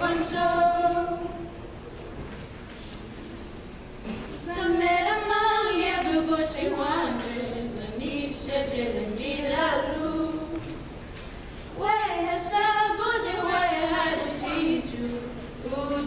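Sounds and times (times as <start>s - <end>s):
women singing unaccompanied: 0.0s - 1.6s, 4.4s - 10.9s, 11.8s - 16.0s.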